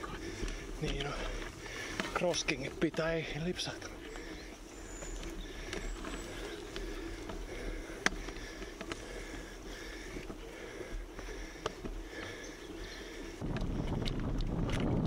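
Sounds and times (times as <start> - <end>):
bike tyres rolling on dirt: 0.0 - 15.0
bike clicks and knocks: 5.0 - 15.0.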